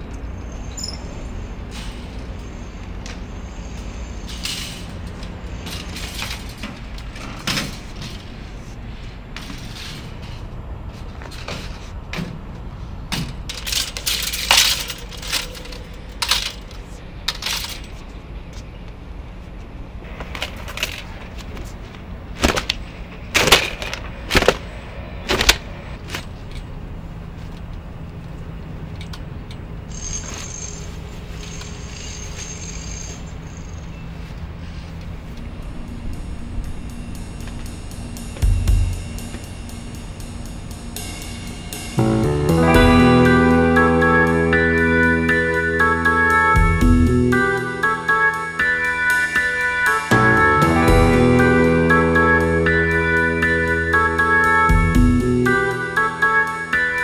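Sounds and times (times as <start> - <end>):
steady low hum: 34.5 - 48.3, 50.1 - 56.4.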